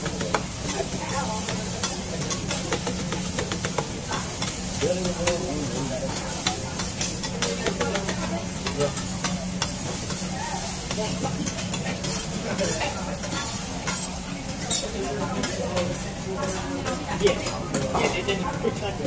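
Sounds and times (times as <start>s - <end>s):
metal spatulas scraping and tapping: 0.0s - 19.0s
rice sizzling on a griddle: 0.0s - 19.0s.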